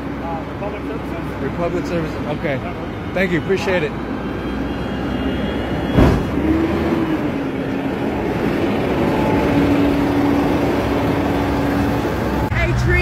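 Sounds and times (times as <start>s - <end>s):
garbage truck engine running: 5.1s - 12.8s
loud thump: 5.9s - 6.5s.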